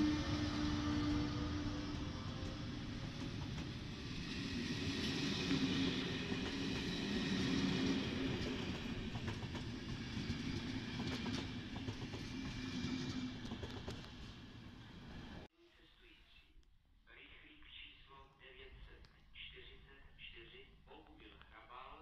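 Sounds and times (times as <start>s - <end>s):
train wheels rumbling on rail: 0.0s - 15.5s.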